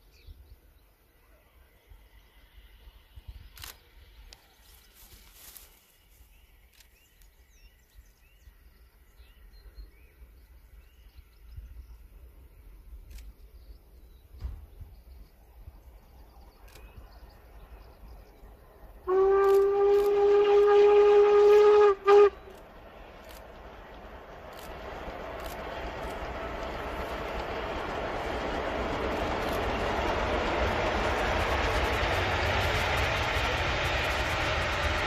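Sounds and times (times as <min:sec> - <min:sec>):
wind rumble: 0:10.4 - 0:35.0
steam locomotive whistle: 0:19.0 - 0:22.6.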